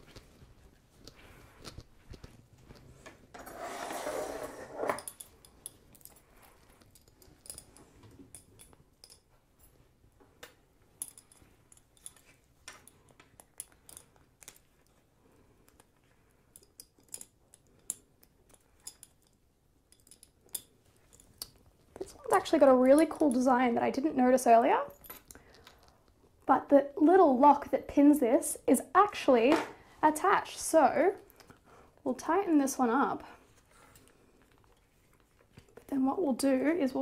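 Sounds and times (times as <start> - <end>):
choker rustling scrape: 3.3 - 5.3
small lock and clasp clinks: 5.0 - 9.8, 11.0 - 15.0, 16.5 - 22.4.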